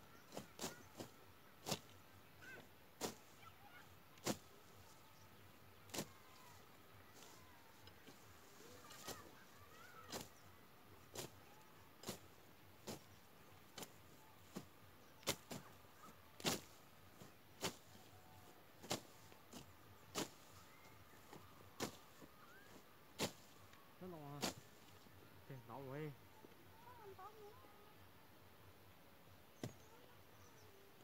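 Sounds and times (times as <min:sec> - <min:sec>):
blade slashing through grass: 0:04.2 - 0:04.6, 0:05.9 - 0:06.2, 0:13.8 - 0:15.7, 0:16.4 - 0:18.1, 0:18.8 - 0:23.6, 0:24.4 - 0:24.9.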